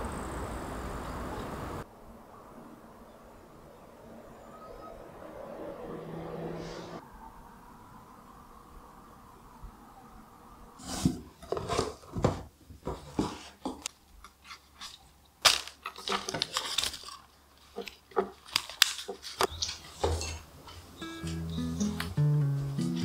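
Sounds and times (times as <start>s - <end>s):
paper wrapping rustling: 14.3s - 21.4s.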